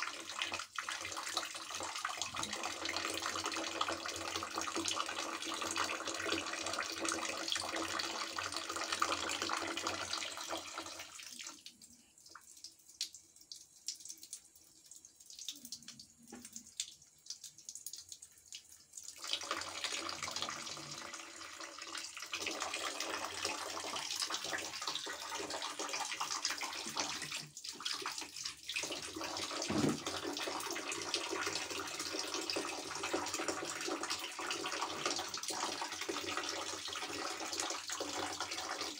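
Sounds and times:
tap water splashing into bucket: 0.0 - 38.9.

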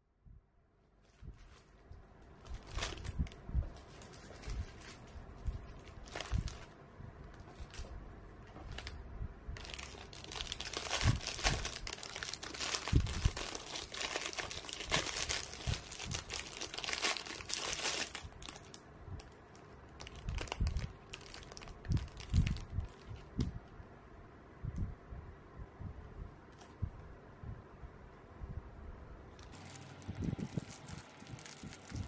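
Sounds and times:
plastic packaging crinkling: 1.0 - 6.8, 8.5 - 9.0, 9.6 - 23.4, 29.4 - 32.0.

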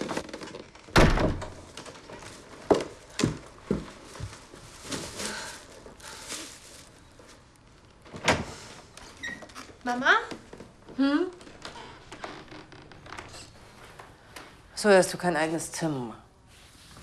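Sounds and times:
soft rustling: 1.6 - 8.0
footsteps: 2.0 - 7.4.

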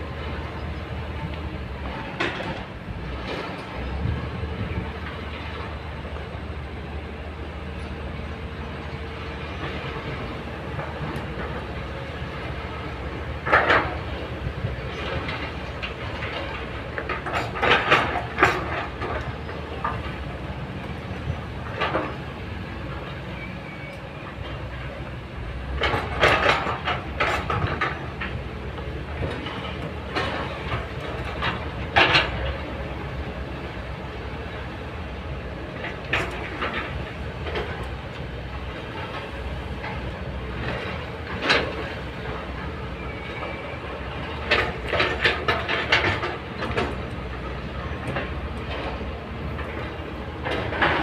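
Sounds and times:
excavator diesel engine running: 0.0 - 51.0
rock and steel clattering: 14.9 - 20.2, 25.7 - 32.8, 44.2 - 51.0.

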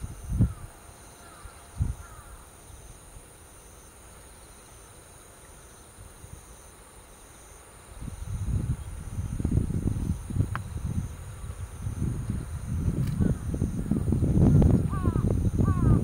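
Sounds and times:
wind on microphone: 0.0 - 0.8, 1.7 - 2.3, 7.9 - 16.0
insects humming: 0.0 - 16.0
faint crow caws: 0.4 - 2.5, 13.2 - 16.0.

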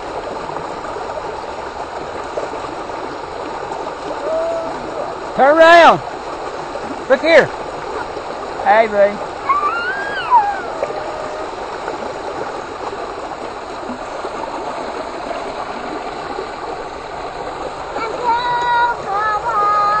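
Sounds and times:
short high calls: 9.4 - 11.6
voice calling out: 9.4 - 11.6.

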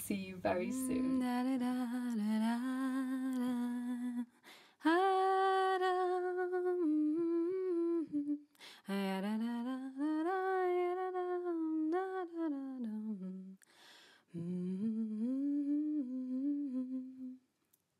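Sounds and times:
woman humming: 0.5 - 2.0, 14.4 - 17.4.

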